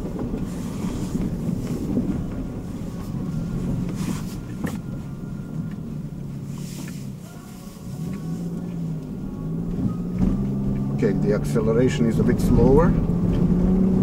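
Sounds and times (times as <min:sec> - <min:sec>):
car engine accelerating: 0:00.0 - 0:14.0
tyre and road noise: 0:00.0 - 0:14.0.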